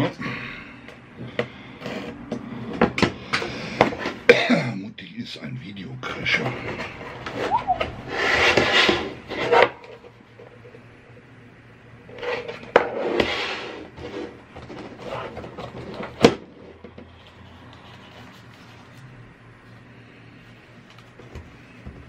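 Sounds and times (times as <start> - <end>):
plastic tray rubbing and scraping: 6.3 - 10.2, 12.1 - 18.8.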